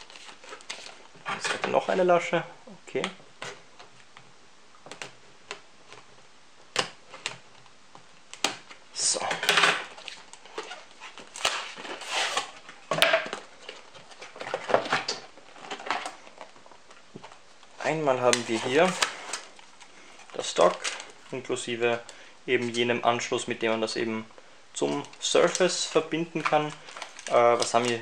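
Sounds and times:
cardboard box rustling and scraping: 0:10.6 - 0:12.6.

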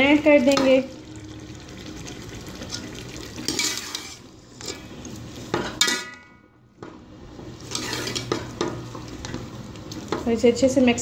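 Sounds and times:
light sizzle: 0:00.0 - 0:11.0
metal spoon scraping steel pot: 0:03.5 - 0:04.9, 0:07.6 - 0:08.4.

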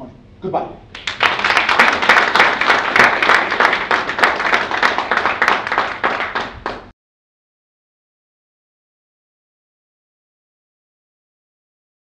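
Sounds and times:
audience applauding: 0:00.9 - 0:06.9.

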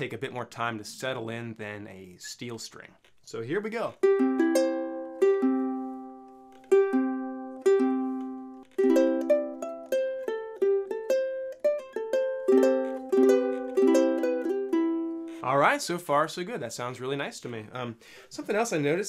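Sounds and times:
ukulele strummed and picked: 0:03.6 - 0:15.5.

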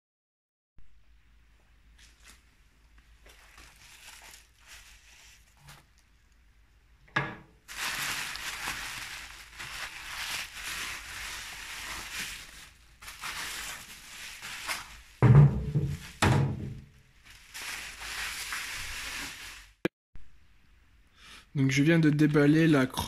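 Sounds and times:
bubble wrap crinkling: 0:02.0 - 0:06.4, 0:07.6 - 0:19.8
wood thudding on metal bench: 0:15.2 - 0:16.9.

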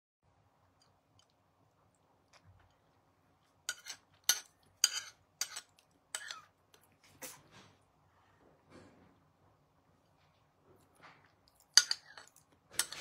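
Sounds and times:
spoon scraping ceramic plate: 0:03.6 - 0:06.5, 0:11.7 - 0:13.0.

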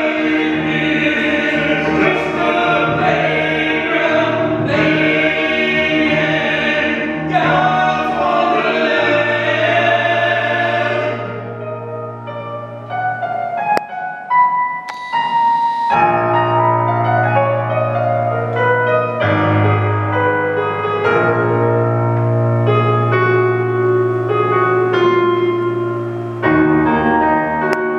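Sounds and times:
people singing in harmony: 0:00.0 - 0:12.5
keyboard chords: 0:00.0 - 0:27.9.

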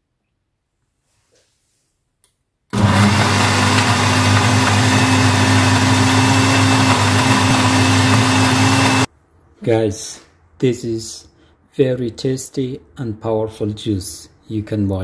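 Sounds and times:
blender running: 0:02.7 - 0:09.1.

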